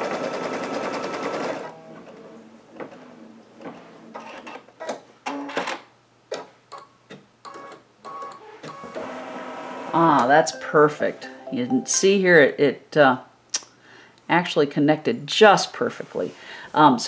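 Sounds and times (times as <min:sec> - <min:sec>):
embroidery machine stitching: 0:00.0 - 0:01.7.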